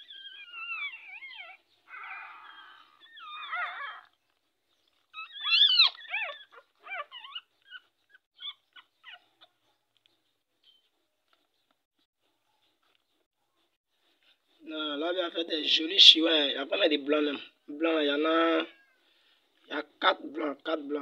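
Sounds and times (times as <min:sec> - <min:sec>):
puppies whining: 0:00.0 - 0:14.4.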